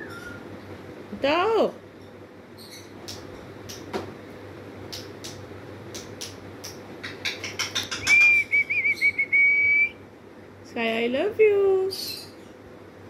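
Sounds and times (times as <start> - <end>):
parrot beak clicking on wicker: 4.9 - 8.5
parrot high whistle: 8.0 - 10.0.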